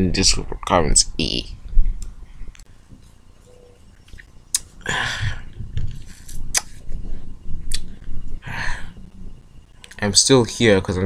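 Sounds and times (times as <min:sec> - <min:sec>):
breathy hissing bursts: 0:08.4 - 0:09.1.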